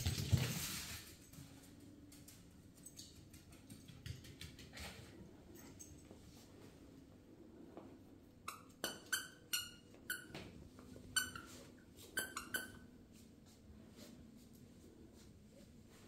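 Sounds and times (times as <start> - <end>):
squeaky toy squeaks: 8.5 - 10.3, 12.2 - 12.8.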